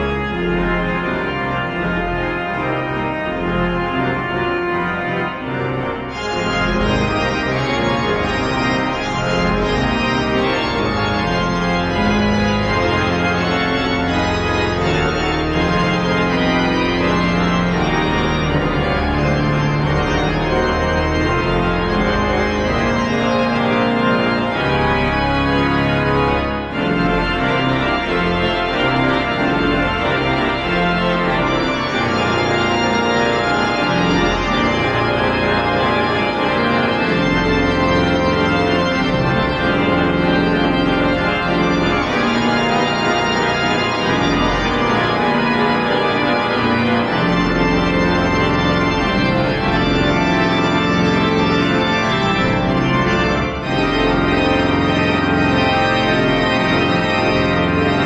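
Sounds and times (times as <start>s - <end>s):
church organ chords: 0.0s - 58.0s.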